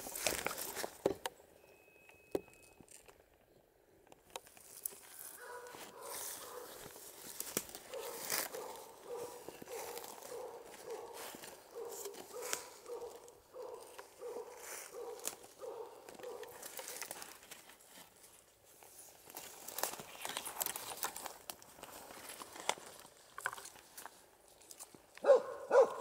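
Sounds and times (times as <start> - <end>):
footsteps through dry leaves: 0.0 - 1.0, 4.6 - 24.9
dog barking: 5.4 - 6.8, 7.9 - 16.6, 25.2 - 26.0.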